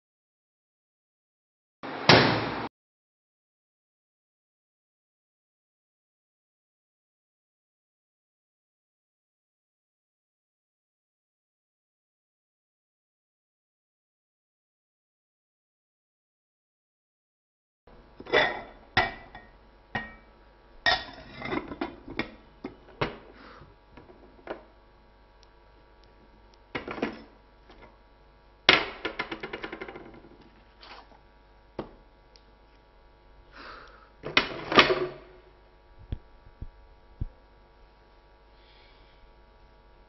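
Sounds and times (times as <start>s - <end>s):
crockery and bottles clinking: 18.3s - 20.3s.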